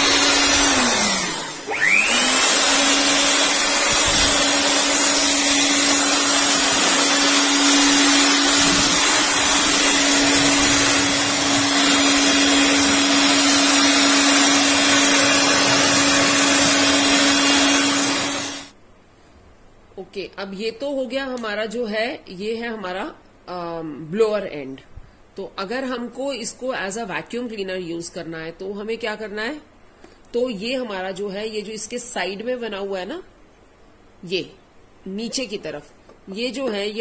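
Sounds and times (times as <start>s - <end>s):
electric air blower running: 0.0s - 18.8s.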